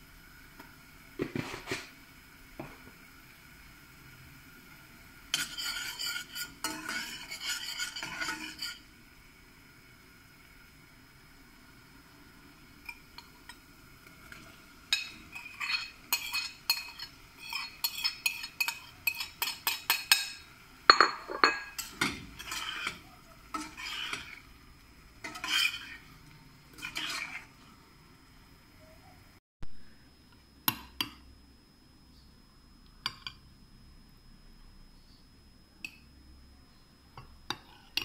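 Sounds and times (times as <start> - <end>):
spoon stirring in a saucepan: 0.6 - 2.0, 4.6 - 8.9, 12.2 - 28.0, 37.2 - 38.0
spoon scraping a ceramic plate: 5.3 - 8.8, 14.3 - 24.4, 25.2 - 27.7.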